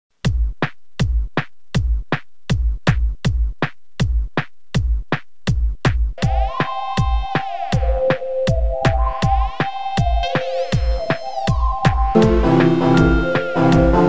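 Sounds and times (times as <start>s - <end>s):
drum machine beat: 0.2s - 14.0s
held synth chord: 6.2s - 14.0s.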